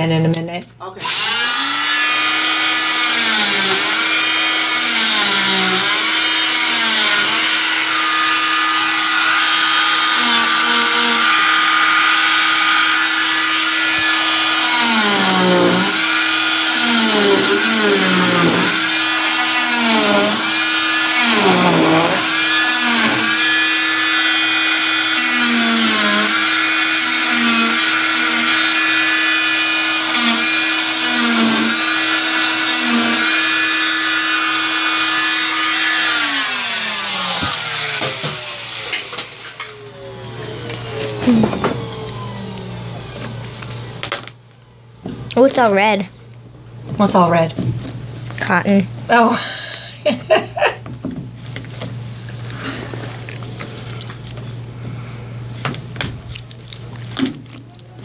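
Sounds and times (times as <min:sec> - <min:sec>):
cast saw whining: 0:00.9 - 0:44.0.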